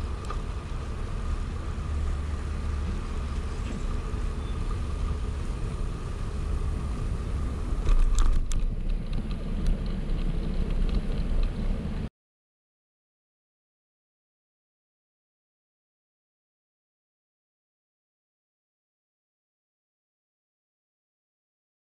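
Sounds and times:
road noise: 0:00.0 - 0:12.1
wind rumbling on microphone: 0:00.0 - 0:12.1.

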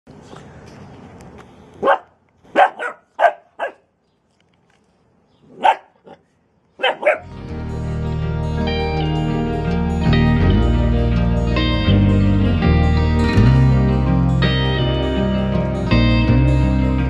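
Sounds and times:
puppy barking: 0:01.8 - 0:03.9, 0:05.5 - 0:06.2, 0:06.8 - 0:07.3
background music: 0:07.2 - 0:17.0.

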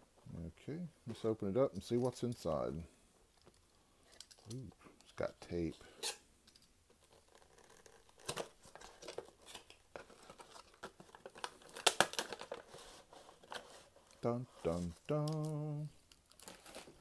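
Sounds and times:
plastic film crinkling and tearing: 0:07.0 - 0:15.6, 0:16.2 - 0:17.0.

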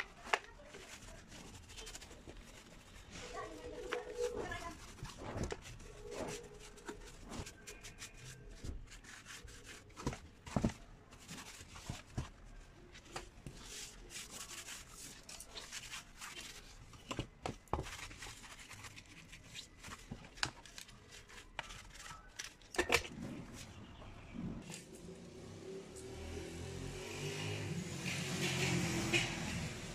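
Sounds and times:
gloved hands rubbing: 0:00.0 - 0:10.4.

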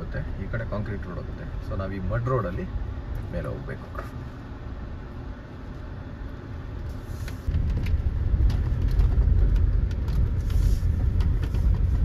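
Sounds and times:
vehicle rumbling on mud road: 0:00.0 - 0:12.0
knocks and rattles: 0:07.5 - 0:12.0.

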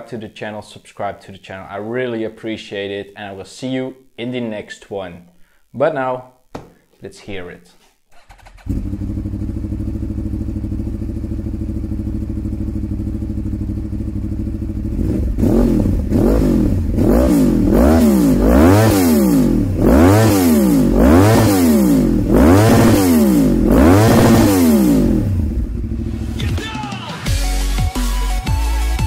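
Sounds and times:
motorcycle engine revving: 0:08.1 - 0:26.4
motorcycle engine idling: 0:08.6 - 0:17.0, 0:25.1 - 0:26.4.

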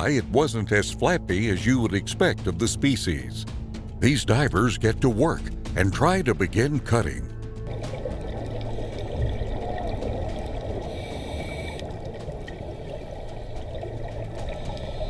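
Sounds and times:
muffled underwater rush: 0:07.6 - 0:15.0
scuba bubbles: 0:07.7 - 0:15.0.

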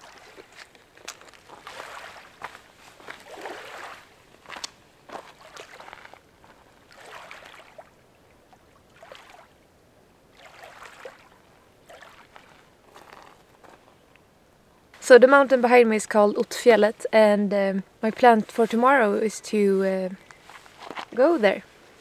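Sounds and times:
water splash: 0:00.0 - 0:00.6, 0:01.4 - 0:06.2, 0:06.8 - 0:09.6, 0:10.3 - 0:12.7
water clicking on stones: 0:00.0 - 0:06.6
small waves lapping on stones: 0:00.0 - 0:09.6, 0:10.3 - 0:13.4.

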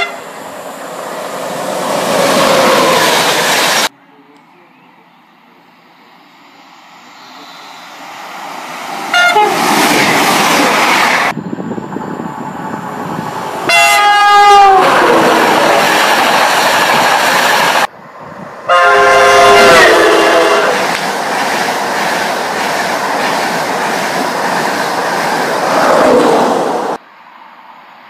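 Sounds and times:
train horn: 0:00.0 - 0:00.2, 0:09.1 - 0:09.6, 0:13.7 - 0:15.0, 0:18.7 - 0:20.8
train passing at speed: 0:00.0 - 0:03.9, 0:05.0 - 0:28.0.

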